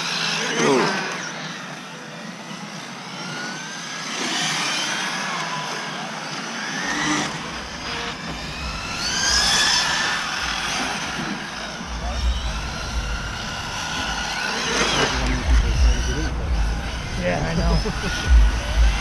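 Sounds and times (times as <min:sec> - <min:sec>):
electric motors whining: 0:00.0 - 0:19.0
wind buffeting microphone: 0:08.3 - 0:19.0.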